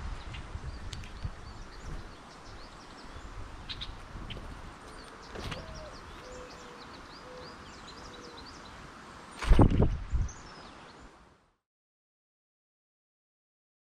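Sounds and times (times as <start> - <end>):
small birds chirping: 0.0 - 11.2.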